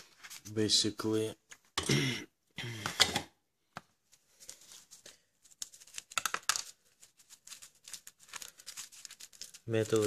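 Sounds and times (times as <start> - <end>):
foil and rubber crinkling: 4.3 - 10.0.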